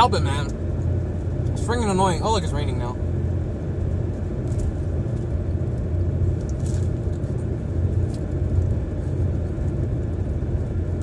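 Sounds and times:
road and engine rumble in car: 0:00.0 - 0:11.0.

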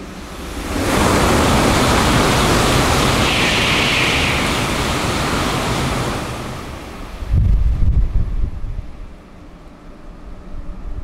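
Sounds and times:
high-speed train passing: 0:00.0 - 0:11.0.

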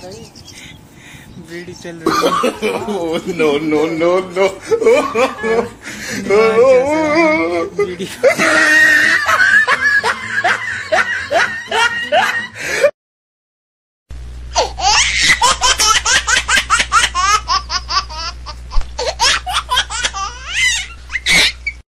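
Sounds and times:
steady low hum: 0:00.0 - 0:12.9, 0:14.1 - 0:21.8
hearty laughter: 0:02.1 - 0:12.9.

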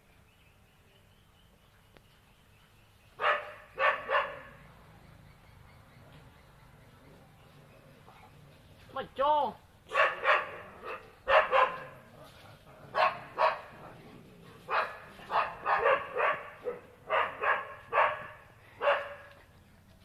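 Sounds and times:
dogs barking: 0:03.2 - 0:04.8, 0:09.9 - 0:19.5.

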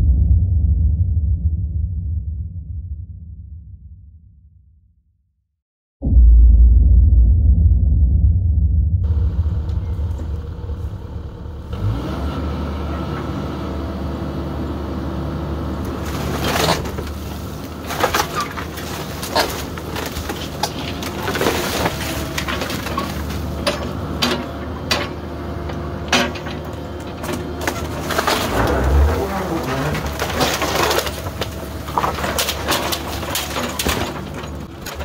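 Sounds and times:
diesel engine under load: 0:09.0 - 0:35.0
splintering wood cracks: 0:15.9 - 0:25.2, 0:26.1 - 0:35.0.

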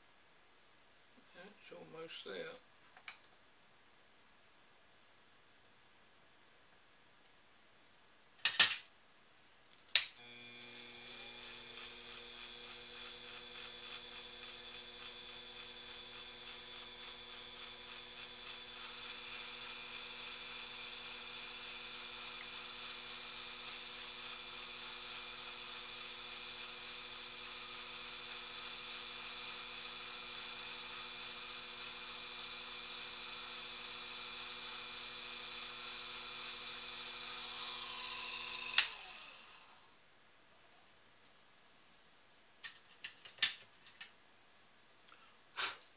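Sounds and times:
lathe motor humming and whining: 0:10.2 - 0:39.9.

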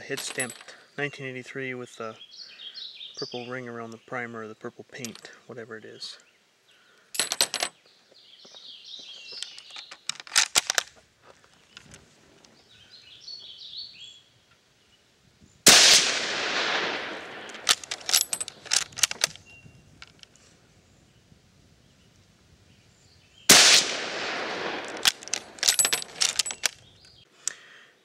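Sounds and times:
birds chirping: 0:00.0 - 0:28.0
rifle shot: 0:15.6 - 0:18.0, 0:23.5 - 0:25.6
rifle bolt clicks: 0:16.1 - 0:19.4, 0:23.5 - 0:26.8.

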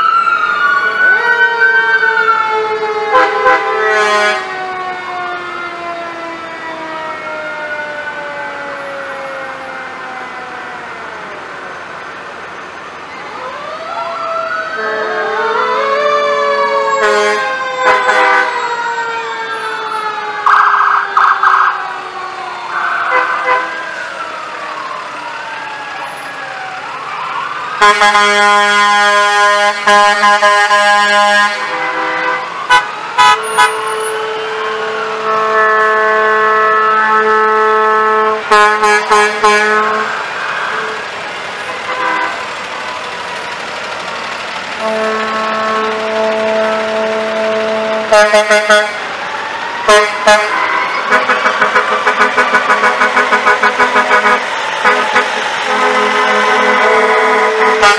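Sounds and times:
emergency sirens wailing: 0:00.0 - 0:57.9
low siren winding down: 0:00.0 - 0:57.9
truck air horn blasts: 0:03.1 - 0:04.5, 0:14.8 - 0:15.5, 0:16.6 - 0:18.6, 0:23.1 - 0:23.8, 0:27.8 - 0:41.0, 0:41.6 - 0:42.5, 0:44.8 - 0:49.1, 0:49.9 - 0:57.9.

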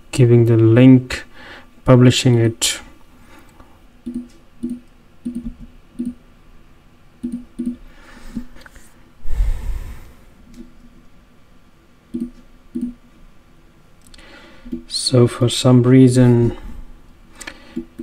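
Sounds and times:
computer mouse clicking: 0:04.0 - 0:06.2, 0:07.2 - 0:08.7, 0:12.1 - 0:13.0, 0:17.4 - 0:18.0
brief rush of noise: 0:09.2 - 0:10.3.

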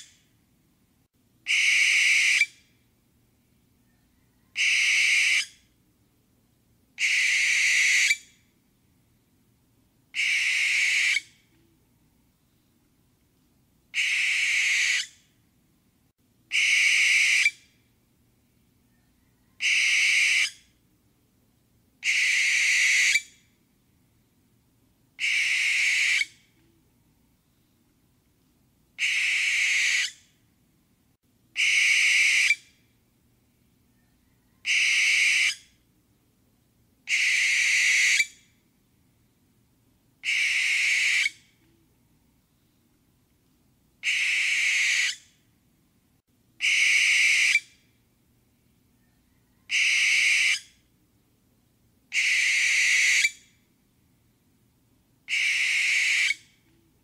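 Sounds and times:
barn owl screeching: 0:01.5 - 0:02.6, 0:04.2 - 0:05.6, 0:07.0 - 0:08.3, 0:10.2 - 0:11.3, 0:13.9 - 0:15.2, 0:16.5 - 0:17.6, 0:19.4 - 0:20.6, 0:22.0 - 0:23.3, 0:25.2 - 0:26.4, 0:29.0 - 0:30.2, 0:31.6 - 0:32.7, 0:34.5 - 0:35.7, 0:37.1 - 0:38.4, 0:40.2 - 0:41.4, 0:44.0 - 0:45.3, 0:46.6 - 0:47.7, 0:49.4 - 0:50.8, 0:52.1 - 0:53.5, 0:55.3 - 0:56.5.

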